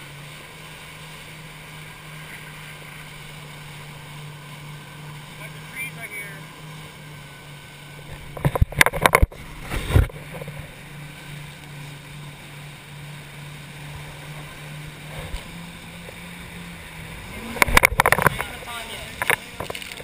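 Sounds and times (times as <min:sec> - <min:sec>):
watercraft engine humming: 0:00.0 - 0:20.0
water slaps: 0:13.8 - 0:20.0.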